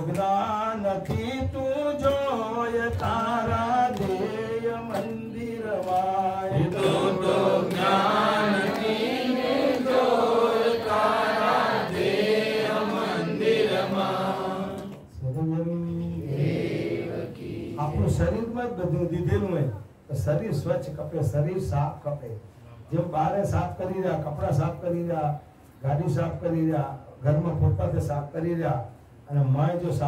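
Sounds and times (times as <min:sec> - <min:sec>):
man chanting a hymn: 0:00.0 - 0:08.8.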